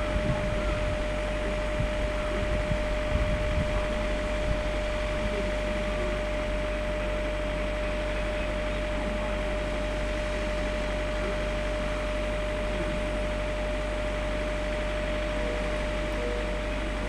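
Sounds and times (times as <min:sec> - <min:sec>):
constant hum tone: 0:00.0 - 0:17.0.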